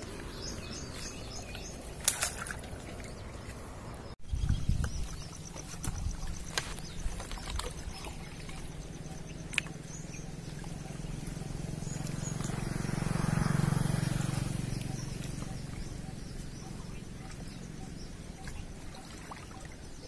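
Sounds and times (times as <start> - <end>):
engine droning past: 0.0 - 4.2, 7.6 - 19.0.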